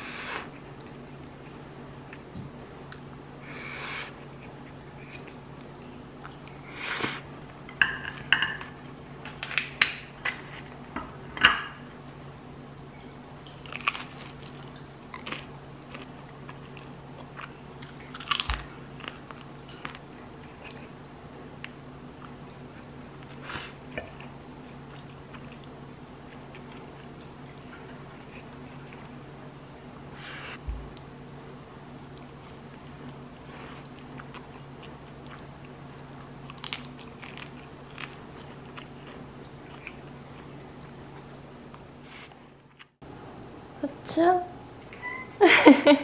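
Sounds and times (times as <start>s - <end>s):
steady low hum: 0.0s - 46.0s
cutlery clinking on plate: 7.7s - 8.8s
crunchy bites: 17.4s - 19.5s.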